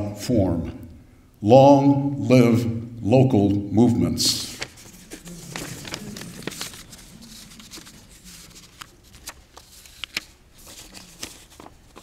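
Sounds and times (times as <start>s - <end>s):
paper rustling and shuffling: 4.4s - 12.0s.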